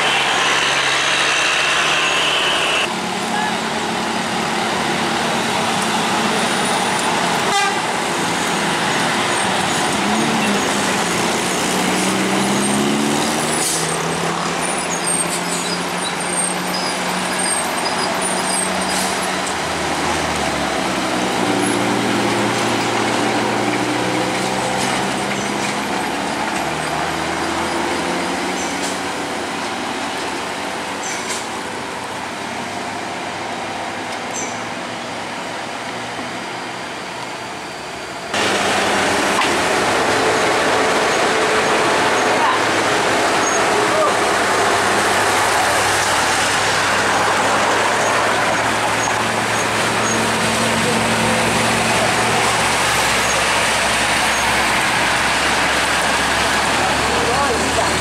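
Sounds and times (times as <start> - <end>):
coach diesel engine climbing: 0.0 - 58.0
other traffic engines: 0.0 - 58.0
horn honks: 7.4 - 7.9.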